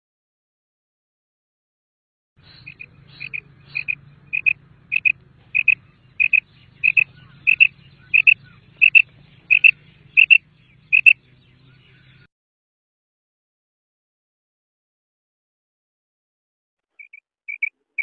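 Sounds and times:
quail calling sharp double notes: 2.4 - 11.2, 17.0 - 17.7.

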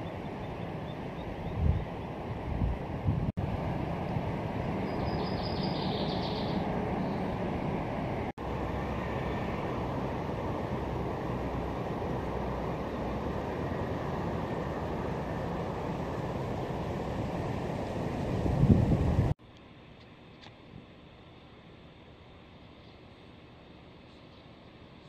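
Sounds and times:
river rushing: 3.4 - 19.4
faint high chirping: 4.8 - 7.3.

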